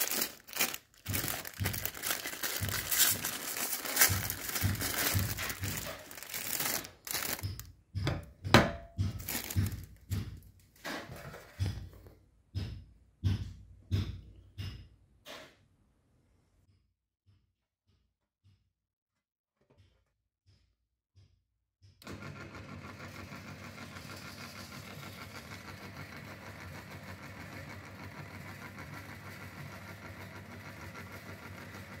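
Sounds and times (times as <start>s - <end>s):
plastic wrapper crackling: 0.0s - 7.7s, 9.2s - 10.0s
rustles and knocks: 0.0s - 13.4s.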